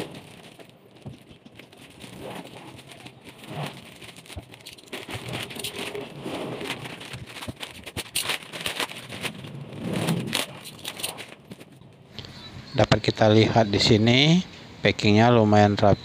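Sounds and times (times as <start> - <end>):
plastic bag crinkling: 0.0 - 11.8.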